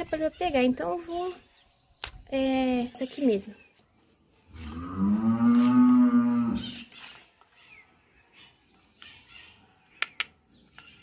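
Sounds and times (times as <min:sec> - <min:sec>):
long moo-like call: 0:04.6 - 0:06.8.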